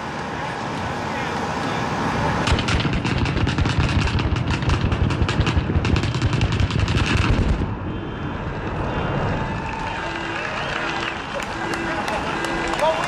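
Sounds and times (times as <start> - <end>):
rapid firework cracks and bangs: 2.4 - 7.8.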